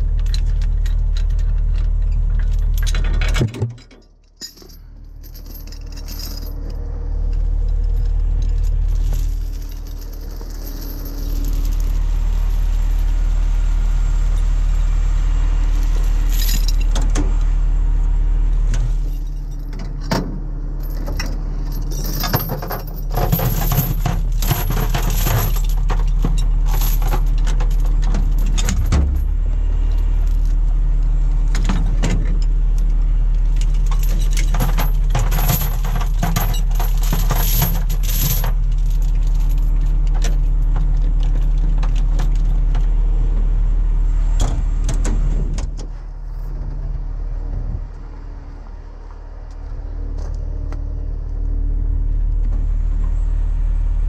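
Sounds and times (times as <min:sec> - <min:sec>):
metal chains clinking: 0:00.1 - 0:13.1, 0:15.7 - 0:17.0, 0:18.9 - 0:29.3, 0:33.4 - 0:42.5
truck engine idling: 0:04.7 - 0:35.1, 0:35.7 - 0:54.0.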